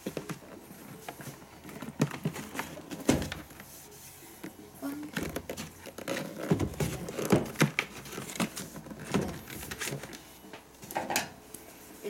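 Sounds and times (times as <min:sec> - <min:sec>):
plastic case rustling and knocking: 0:01.2 - 0:03.6, 0:05.0 - 0:10.2.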